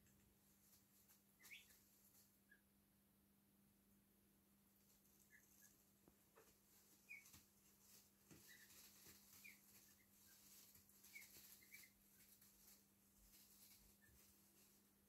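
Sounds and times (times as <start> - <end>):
rustling in wood shavings: 0.4 - 2.4, 4.8 - 15.0
ducklings peeping: 1.0 - 2.7, 5.0 - 12.8.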